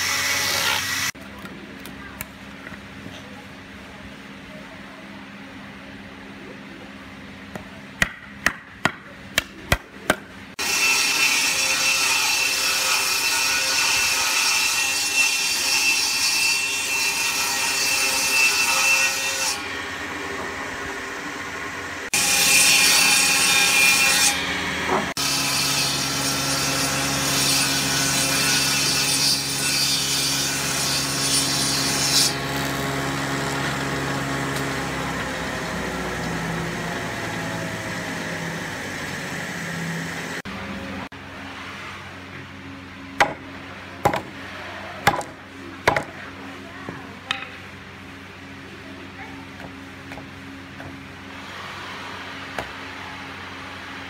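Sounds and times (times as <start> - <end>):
jointer-planer shaving wood: 10.6 - 40.4
wood chisel being struck: 43.2 - 43.4, 44.0 - 44.3, 45.0 - 46.1, 47.3 - 47.6.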